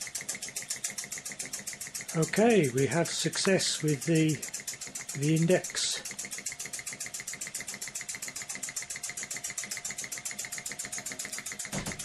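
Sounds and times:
toy steam engine chuffing: 0:00.0 - 0:12.0.

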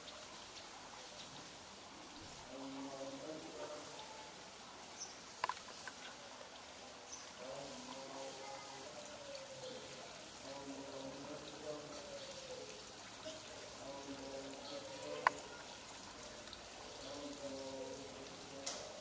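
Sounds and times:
person chanting a melodic recitation: 0:07.4 - 0:09.8, 0:10.4 - 0:12.8, 0:16.9 - 0:19.0.

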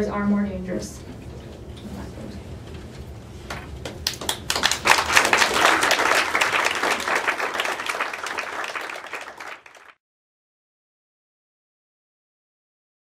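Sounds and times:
audience applauding: 0:03.9 - 0:10.0.

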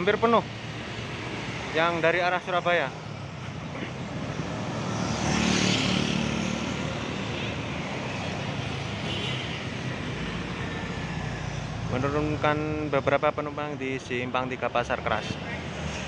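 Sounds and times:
motorcycles driving past: 0:03.0 - 0:11.8.

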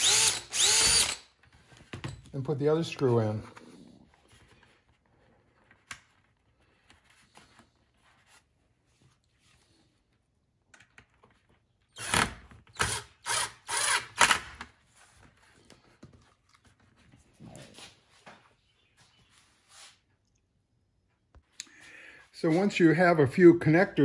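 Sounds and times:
cordless drill driving screw: 0:00.0 - 0:01.3, 0:11.9 - 0:14.5.

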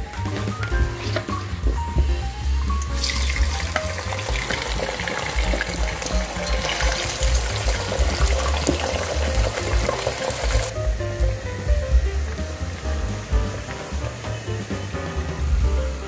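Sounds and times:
background music with a beat: 0:00.0 - 0:16.0
oil sizzling: 0:00.0 - 0:16.0
potatoes dropped into hot oil: 0:03.0 - 0:10.7.

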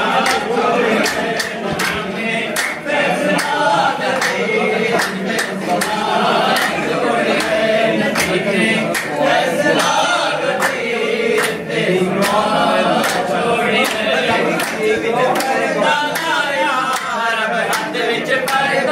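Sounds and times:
hand clapping: 0:00.0 - 0:18.9
men singing a chant: 0:00.0 - 0:18.9.

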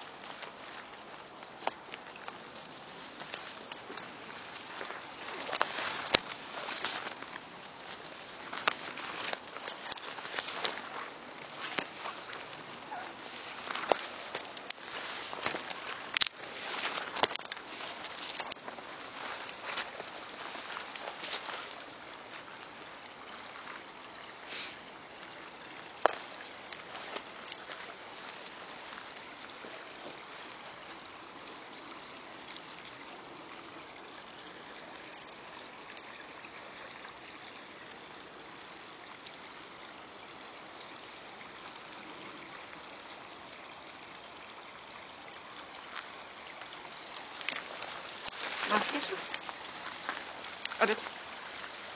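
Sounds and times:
running water hiss: 0:00.0 - 0:51.9
twigs snapping and rustling: 0:03.1 - 0:21.8, 0:26.0 - 0:28.5, 0:47.0 - 0:51.9.

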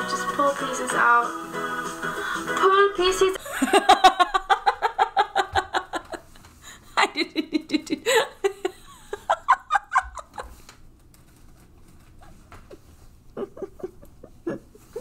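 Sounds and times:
woman laughing hard: 0:03.4 - 0:10.6, 0:12.7 - 0:15.0.

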